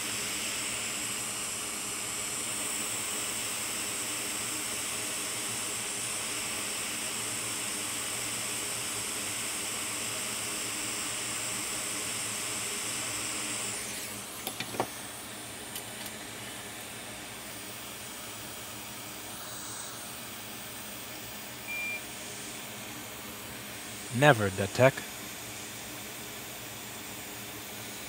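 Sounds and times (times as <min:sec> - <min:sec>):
hot air station hissing: 0:13.6 - 0:15.4, 0:16.2 - 0:28.0
short high beep: 0:21.7 - 0:22.0.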